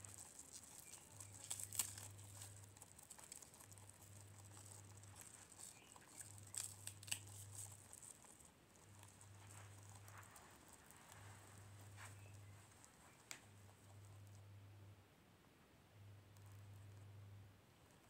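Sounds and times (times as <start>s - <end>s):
leaves rustling: 0.0s - 3.5s, 4.6s - 8.2s
sharp crackly snaps: 0.0s - 14.4s
guinea pig chewing lettuce: 0.0s - 14.6s, 16.2s - 18.0s.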